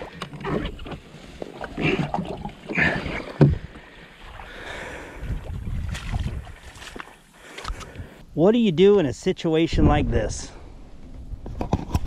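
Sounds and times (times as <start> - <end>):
hull scraping through mud: 0.0 - 7.2
water sloshing: 0.0 - 8.1.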